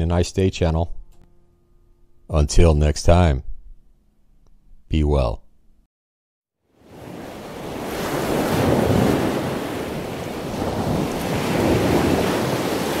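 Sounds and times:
rushing surf-like noise: 7.0 - 13.0.

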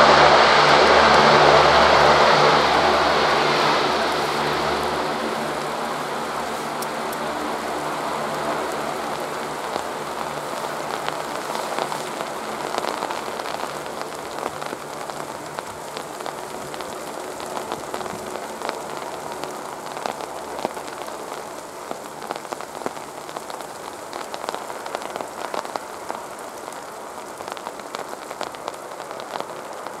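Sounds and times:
hovercraft turbines and propellers: 0.0 - 21.6
icy rain drop ticks: 2.7 - 30.0.

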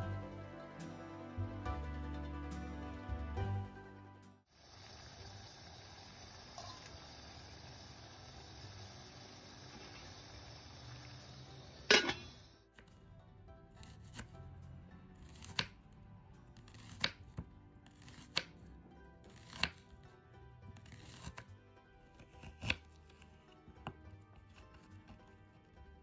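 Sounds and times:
soft background music: 0.0 - 4.5, 6.6 - 26.0
knife slicing onion on wooden board: 15.2 - 15.8, 16.6 - 20.0, 20.7 - 21.5, 22.1 - 25.4.

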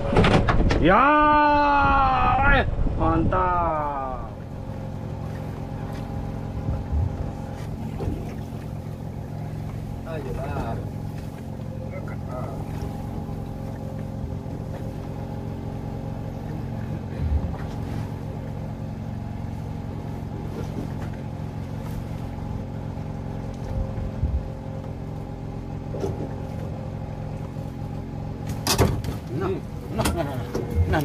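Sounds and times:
boat engine running: 0.0 - 31.0
dull knocks on boat: 28.4 - 29.3.

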